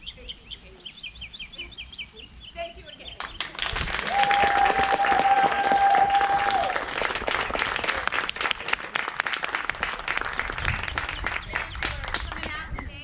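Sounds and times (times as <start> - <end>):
audience applauding: 3.2 - 12.6
person whooping: 4.0 - 6.8.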